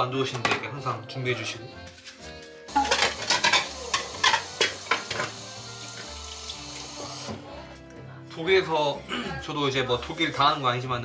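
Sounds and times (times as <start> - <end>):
plates and cutlery clinking: 1.9 - 5.5
scrubbing dishes: 2.7 - 7.4
water splashing and running: 2.7 - 7.4.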